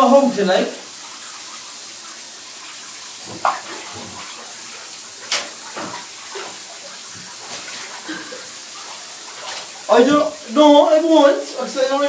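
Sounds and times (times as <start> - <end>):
shower running into bathtub: 0.0 - 12.0.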